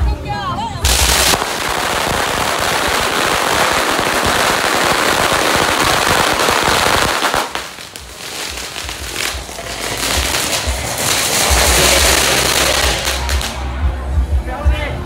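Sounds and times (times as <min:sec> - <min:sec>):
firecrackers popping: 0:00.8 - 0:13.8.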